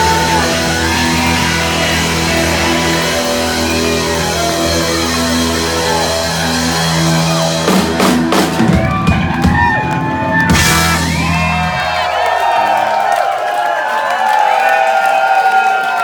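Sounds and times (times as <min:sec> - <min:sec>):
bass guitar: 0:00.0 - 0:12.3
rapid drum hits and cymbals: 0:00.0 - 0:12.5
swooping guitar noise: 0:00.0 - 0:12.7.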